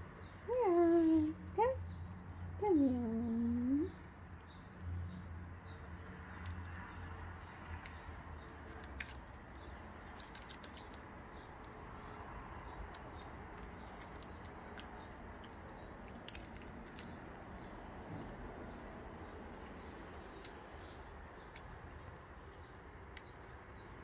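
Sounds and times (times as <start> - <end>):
cat crunching dry kibble: 6.0 - 11.9, 12.7 - 20.6
kibble clicking in metal bowl: 8.7 - 11.8, 12.9 - 17.2.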